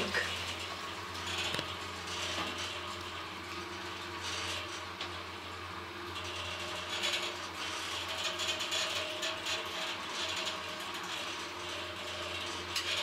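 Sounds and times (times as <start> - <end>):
lift mechanical clicks and rattles: 0.1 - 3.2.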